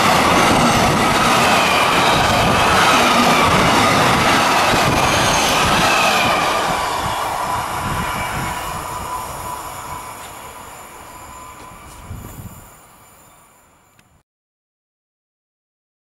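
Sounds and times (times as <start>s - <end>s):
train wheels on rails: 0.0s - 14.2s
thin steady whine: 6.7s - 14.2s.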